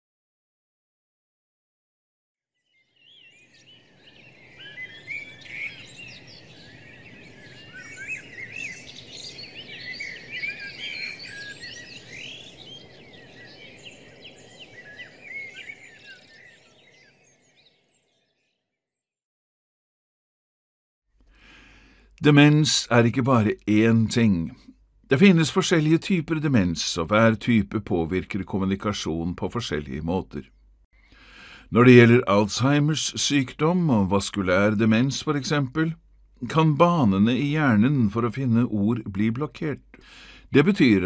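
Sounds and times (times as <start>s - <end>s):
small birds chirping: 2.6s - 18.7s.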